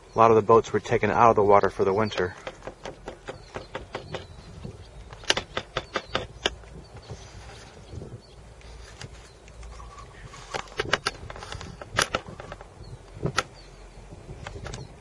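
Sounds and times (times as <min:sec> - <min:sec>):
steady low rumble: 0:00.0 - 0:15.0
sharp clicks and knocks: 0:02.0 - 0:07.2, 0:10.4 - 0:13.6, 0:14.4 - 0:15.0.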